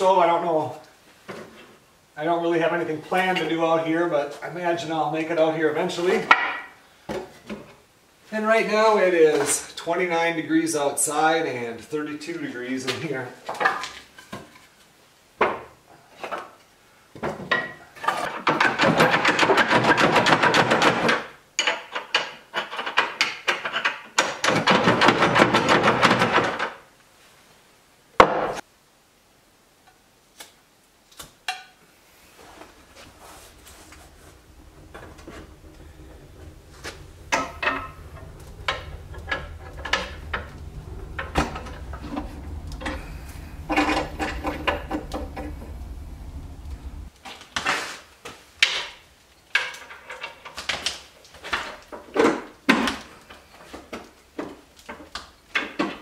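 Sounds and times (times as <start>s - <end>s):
knocks and clatter at wood stove: 17.2s - 26.8s, 33.5s - 47.1s
low rumble: 32.4s - 47.1s.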